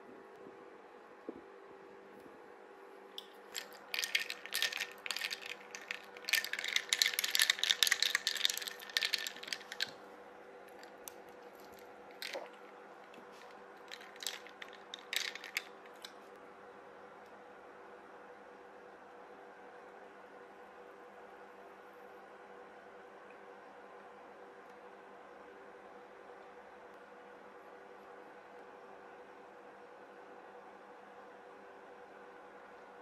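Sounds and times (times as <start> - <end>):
ice cubes clinking in a cup: 3.5 - 10.0, 10.8 - 12.5, 13.2 - 16.1.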